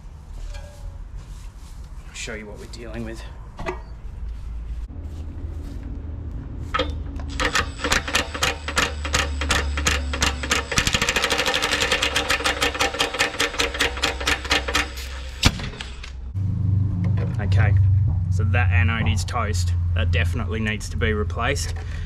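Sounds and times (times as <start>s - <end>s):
impact wrench hammering: 6.8s - 15.8s.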